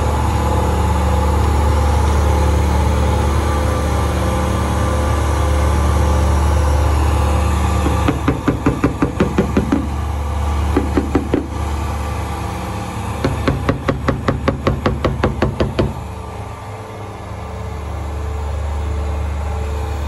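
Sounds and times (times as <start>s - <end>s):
low machine hum: 0.0s - 20.0s
rapid tapping on metal panel: 7.8s - 10.0s, 10.7s - 11.6s, 13.2s - 16.0s.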